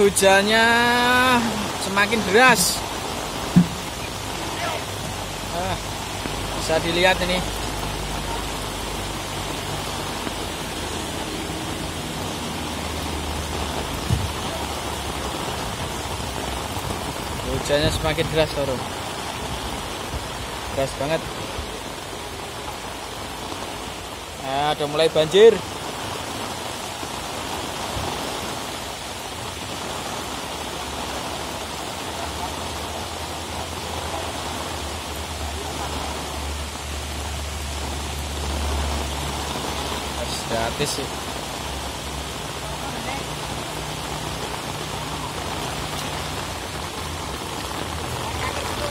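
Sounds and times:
heavy rain falling: 0.0 - 48.9
dull thump: 3.5 - 4.0, 14.0 - 14.4.

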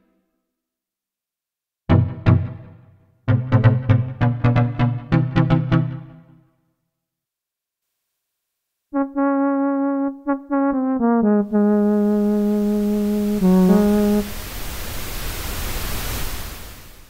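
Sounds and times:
synthesizer flute-like tone: 9.0 - 14.4
hiss: 12.8 - 17.0.

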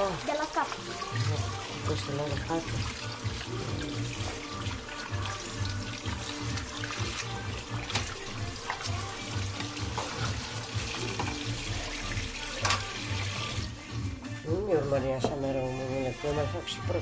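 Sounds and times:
tap running into metal sink: 7.8 - 10.4, 11.0 - 11.5, 12.6 - 13.3.

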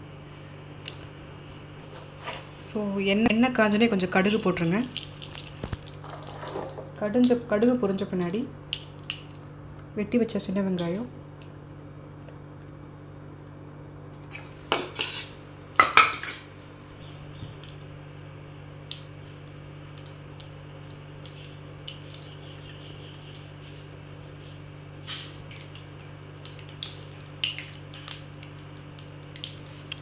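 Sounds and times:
steady low hum: 0.0 - 30.0
mustard seeds popping in oil: 4.1 - 6.5, 7.1 - 9.7, 18.8 - 23.9, 25.2 - 30.0.

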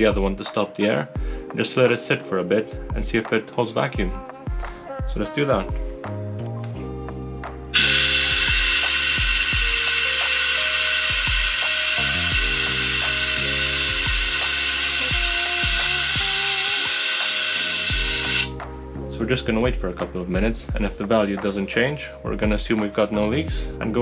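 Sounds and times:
compressed air hissing: 7.7 - 18.6.

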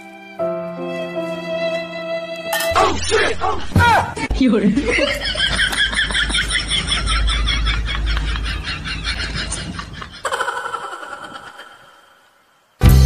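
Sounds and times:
man laughing: 2.8 - 12.0.

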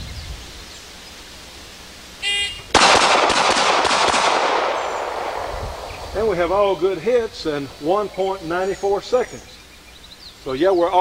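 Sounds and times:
pistol shots: 2.7 - 6.0.

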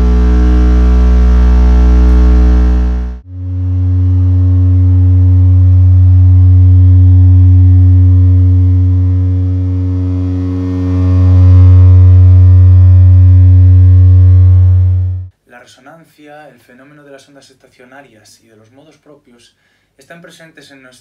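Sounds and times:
low test tone hum: 0.0 - 15.3.

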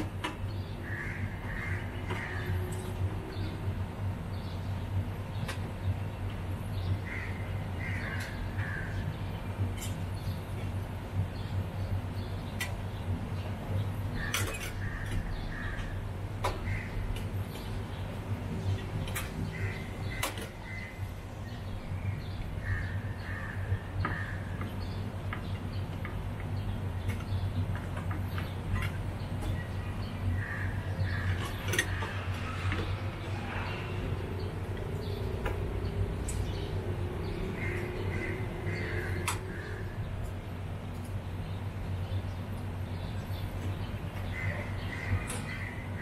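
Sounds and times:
steady low hum: 0.0 - 46.0
steady low rumble: 0.5 - 46.0
crow cawing: 0.8 - 2.8, 7.0 - 9.0, 14.2 - 16.0, 16.6 - 17.1, 19.5 - 21.0, 22.6 - 24.7, 30.4 - 32.7, 37.5 - 40.0.

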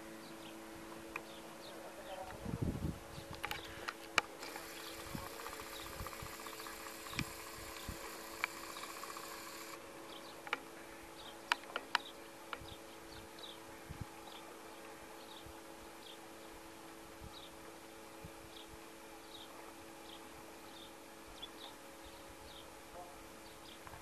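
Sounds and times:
faint steady hum: 0.0 - 24.0
sharp clicks: 3.3 - 9.8
fast even ticking: 4.4 - 9.8.

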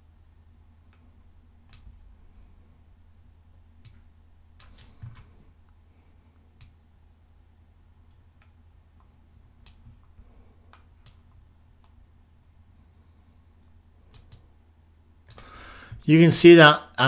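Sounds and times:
low electrical hum: 0.0 - 17.0
computer mouse clicks: 0.9 - 2.0, 4.6 - 5.3, 8.1 - 12.0, 14.1 - 14.5.

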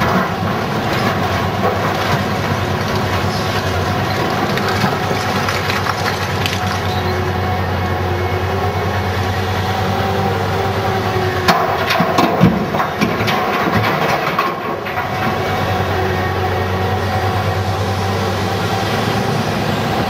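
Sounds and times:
rocks crashing into steel truck bed: 0.0 - 7.0, 11.5 - 15.3
heavy diesel engines running: 0.0 - 20.0.

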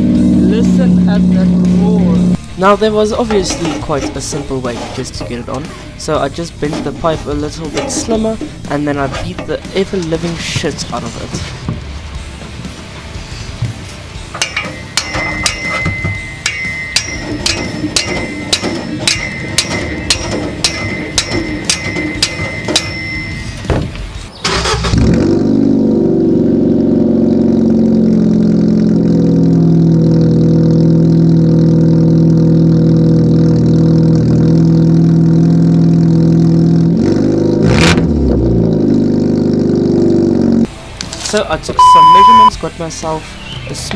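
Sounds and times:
car engine starting and idling: 0.0 - 43.5
hammer on metal pipe: 14.4 - 23.6.

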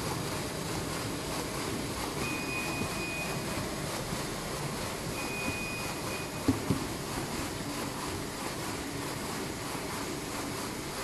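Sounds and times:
thin high whine: 5.0 - 6.5.

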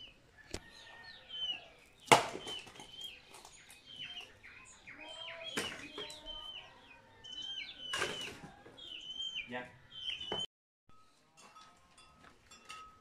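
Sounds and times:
small birds chirping: 0.0 - 10.5
axe chopping wood: 2.0 - 2.8.

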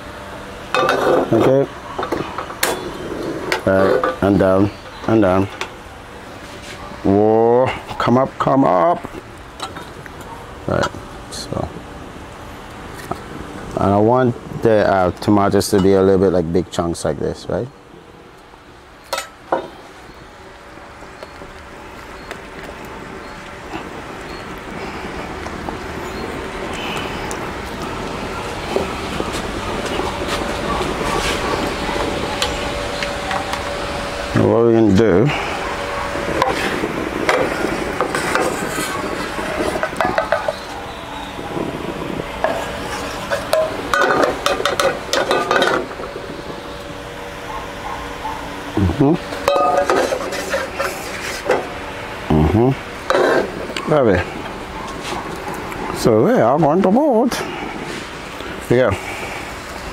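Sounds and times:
spatula scraping metal bowl: 49.5 - 51.6.

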